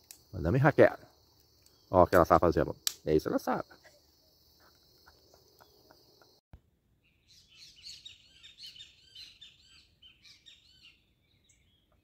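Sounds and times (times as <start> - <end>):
cricket trill: 0.0 - 6.4
small birds chirping: 0.1 - 6.4, 7.0 - 12.0.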